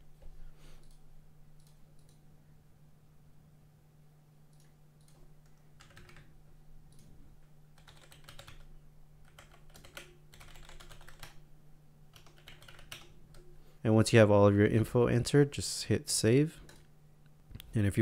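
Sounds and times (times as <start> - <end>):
low steady hum: 0.0 - 18.0
typing on keyboard: 4.6 - 6.3, 7.8 - 11.4, 12.1 - 13.5.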